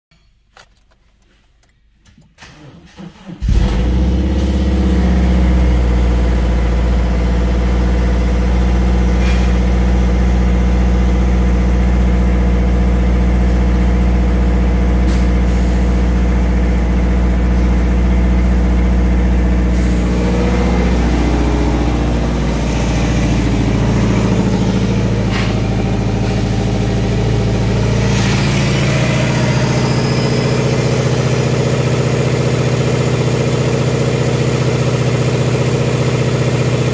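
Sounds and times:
car engine starting and idling: 0.4s - 36.9s.

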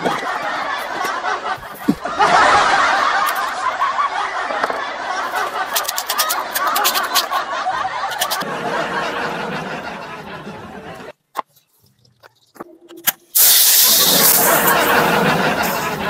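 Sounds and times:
laugh track: 0.0s - 11.2s, 14.0s - 16.0s.

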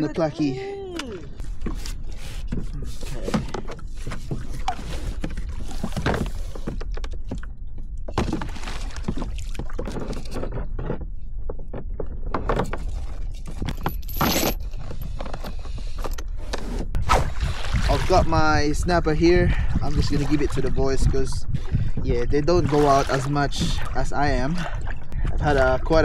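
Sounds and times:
plastic knocks and clatter: 9.1s - 14.0s
metal chain rattling: 13.5s - 14.8s
low rumble: 16.9s - 26.0s.

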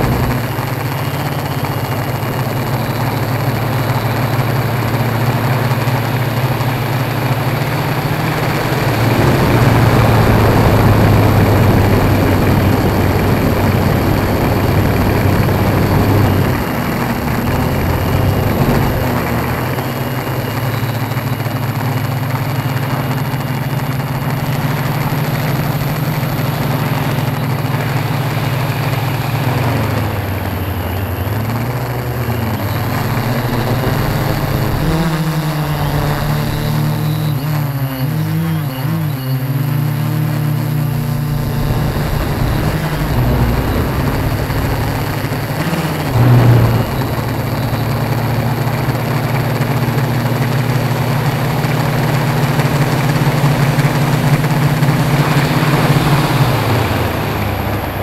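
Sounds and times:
drone motors and propellers humming: 0.0s - 58.0s.

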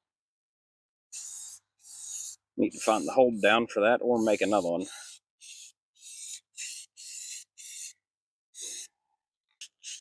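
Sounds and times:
spray can hissing: 1.1s - 3.6s, 4.2s - 8.0s, 8.6s - 8.9s, 9.6s - 10.0s.

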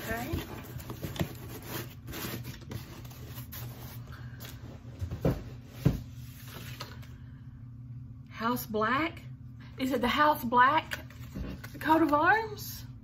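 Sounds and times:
packaging rustling: 0.0s - 4.6s.

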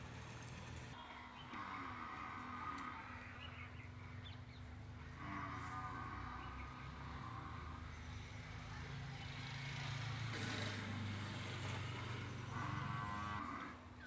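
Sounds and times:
motor engine humming: 0.0s - 1.0s.

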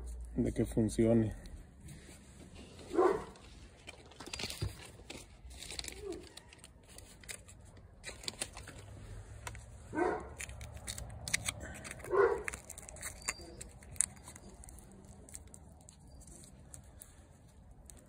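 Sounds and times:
dog barks: 2.9s - 3.4s, 9.9s - 10.4s, 12.0s - 12.5s
foil tape and plastic wrap crinkling: 2.9s - 18.0s.

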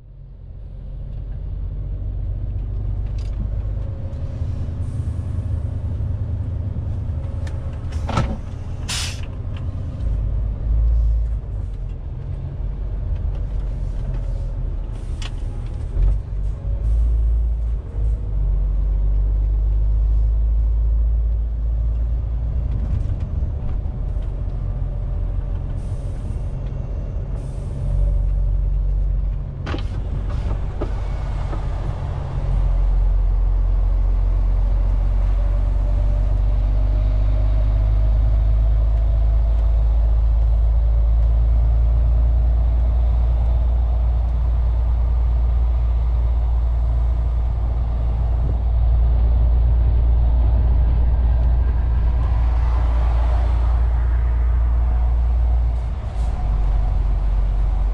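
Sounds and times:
truck diesel engine rumble: 0.0s - 57.9s.

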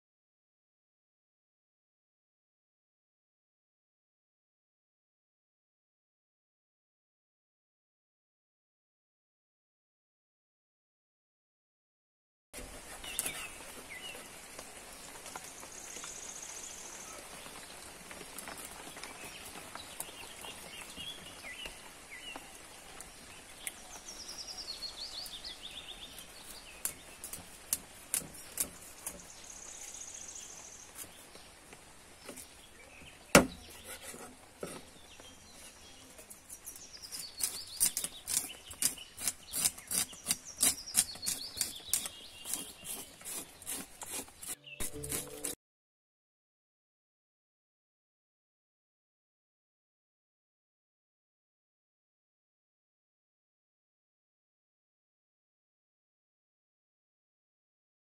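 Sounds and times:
birds chirping: 12.9s - 17.8s, 18.5s - 45.6s
knife scraping fish scales: 26.2s - 29.3s, 33.5s - 35.0s, 35.6s - 45.6s
sharp knock on wooden board: 33.4s - 33.7s.

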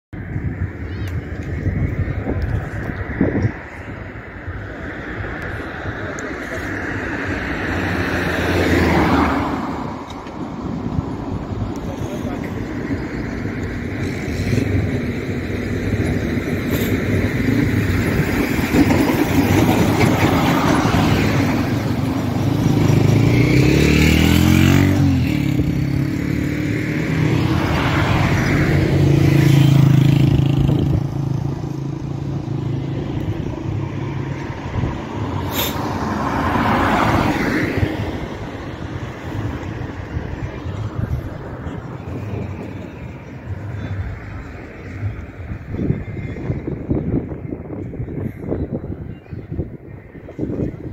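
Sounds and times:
vehicles passing: 0.2s - 50.9s
engine revving: 22.4s - 31.4s.

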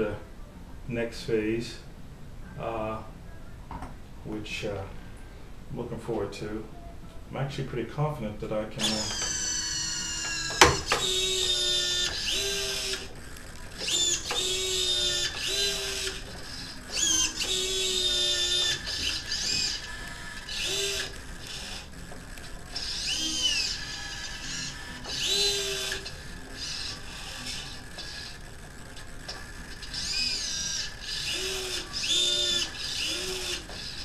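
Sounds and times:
electric motor whining in bursts: 8.8s - 34.0s.

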